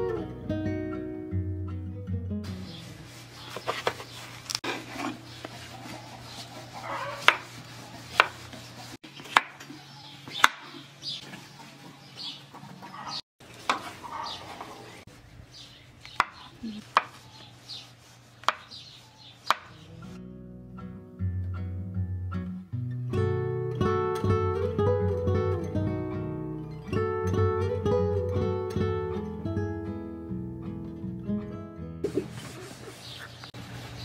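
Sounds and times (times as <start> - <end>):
knife chopping on cutting board: 7.0 - 8.6, 9.2 - 9.6, 16.2 - 17.2, 18.4 - 18.8, 19.4 - 19.8.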